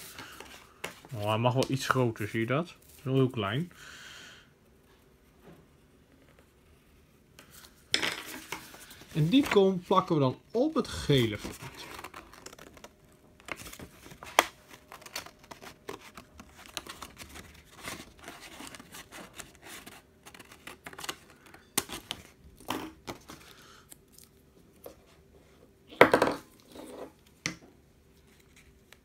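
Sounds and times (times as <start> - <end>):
paper handling sound: 7.4 - 10.1, 10.8 - 25.2
paper rustling: 8.4 - 10.0, 10.9 - 22.4.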